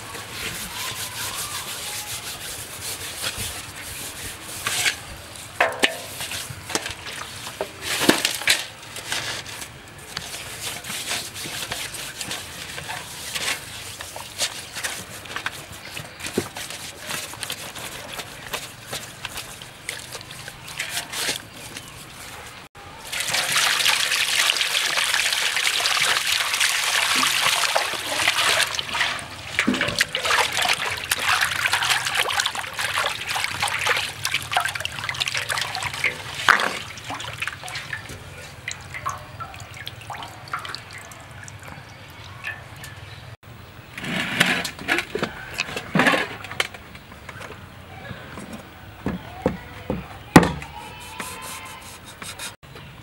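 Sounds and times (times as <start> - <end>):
rubbing of wet skin: 0.0 - 7.6, 9.4 - 22.6
water sloshing and splashing: 0.0 - 43.4, 44.0 - 50.6.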